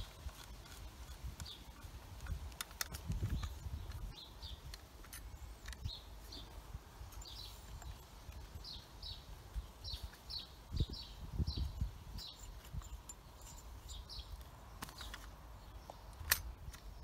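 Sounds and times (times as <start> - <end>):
hand tools clicking and knocking: 0.0 - 6.0, 12.0 - 15.4
small bird chirping: 0.0 - 17.0.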